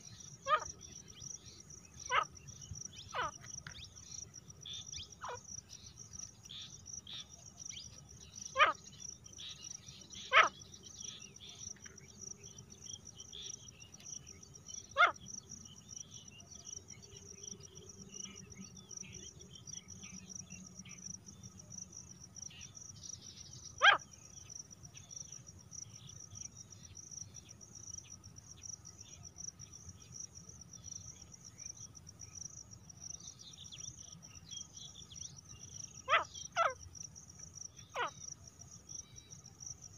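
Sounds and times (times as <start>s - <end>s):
francolin calling: 0.0s - 21.0s, 33.3s - 36.9s, 37.7s - 38.4s
crickets chirping: 0.0s - 39.9s.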